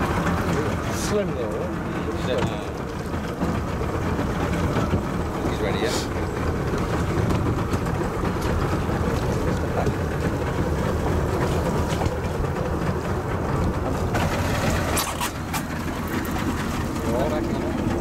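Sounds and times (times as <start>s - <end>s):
boat engine rumble: 0.0s - 18.0s.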